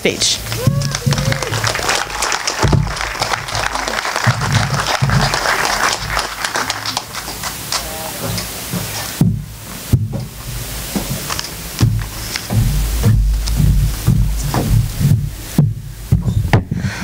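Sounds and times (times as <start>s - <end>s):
audience applauding: 0.0s - 8.7s
cheers: 0.4s - 8.1s.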